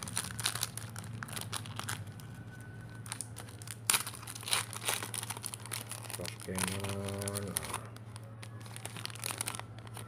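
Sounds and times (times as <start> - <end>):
foil wrapper crinkling: 0.0 - 10.0
foil wrapper ripping: 0.0 - 10.0.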